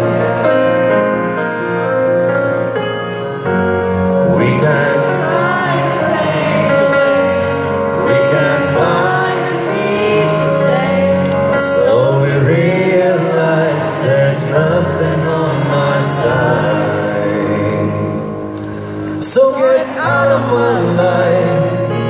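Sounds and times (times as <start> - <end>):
keyboard: 0.0 - 22.0
person singing: 3.9 - 22.0.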